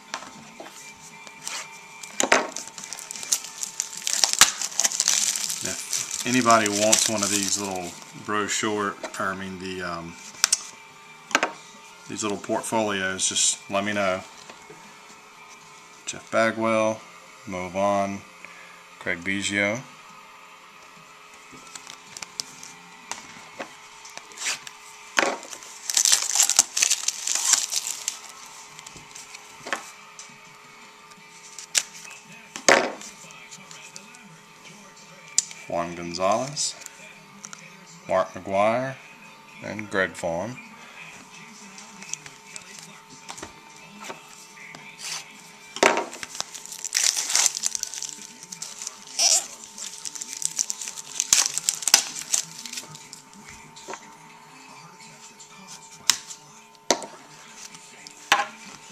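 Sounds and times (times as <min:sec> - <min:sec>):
card pack crinkling and tearing: 0:01.3 - 0:08.9, 0:21.6 - 0:22.8, 0:24.0 - 0:29.9, 0:31.4 - 0:32.2, 0:41.8 - 0:43.0, 0:44.9 - 0:53.4.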